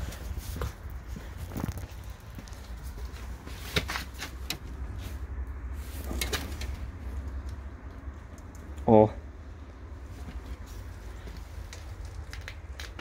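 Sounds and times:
footsteps on concrete floor: 0.0s - 4.3s.

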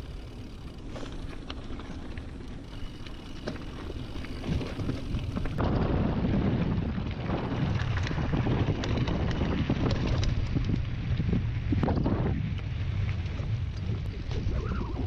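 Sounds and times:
tyres crunching on gravel: 0.0s - 14.6s
bike clicks and rattles: 0.0s - 15.0s
wind buffeting microphone: 3.8s - 15.0s.

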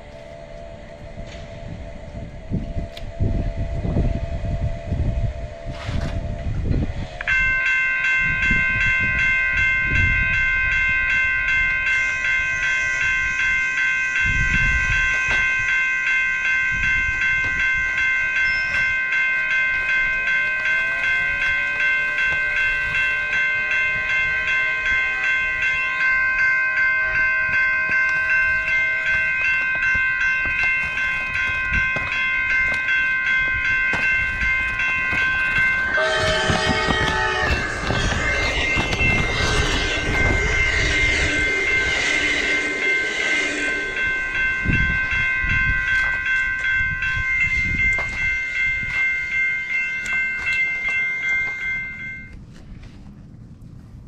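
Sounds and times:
train horn: 0.0s - 7.5s, 19.7s - 31.0s, 34.0s - 46.2s
pulsing ringing tone: 0.0s - 52.4s
train rattling past: 0.0s - 52.4s.

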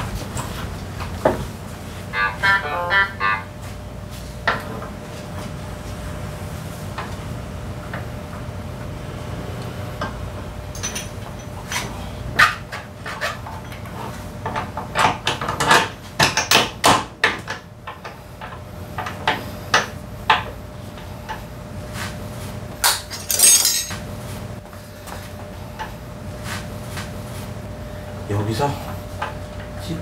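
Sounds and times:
tools and metal parts clinking: 10.7s - 11.9s, 22.8s - 24.0s.

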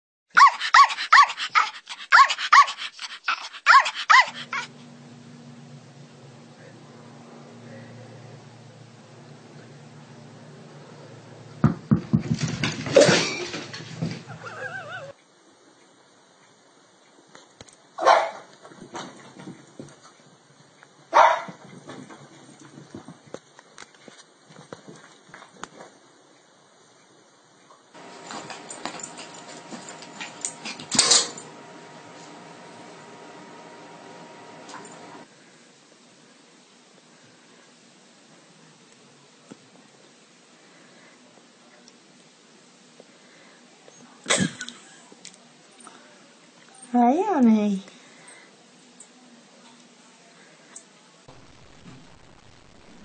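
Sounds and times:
small dog barking: 0.3s - 4.7s, 18.0s - 18.5s, 21.1s - 21.6s
faint steady hum: 26.3s - 53.0s.

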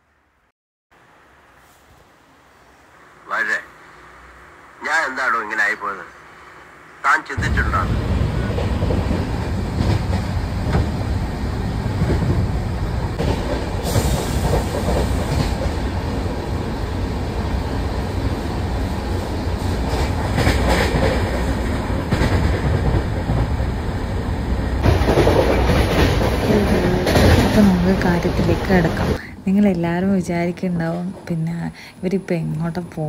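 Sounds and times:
train rumbling on rails: 2.4s - 33.0s
rail clacks: 7.3s - 29.2s.

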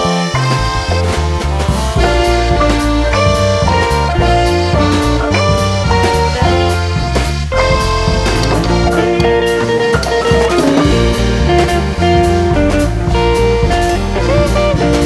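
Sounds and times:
song with guitar and drums: 0.0s - 15.0s.

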